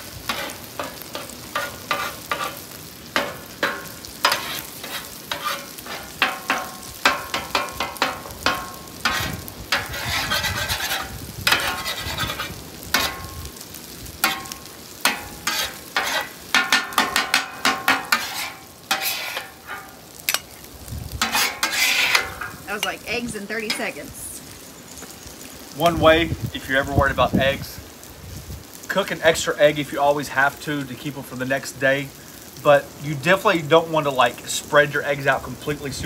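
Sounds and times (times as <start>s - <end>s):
spatula scraping on griddle: 0.0s - 24.2s
eggs sizzling: 0.0s - 36.0s.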